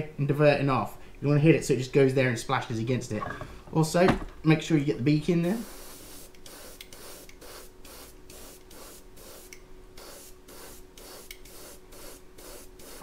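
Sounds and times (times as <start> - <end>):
faint steady hum: 0.0 - 13.0
airbrush spraying in bursts: 5.4 - 13.0.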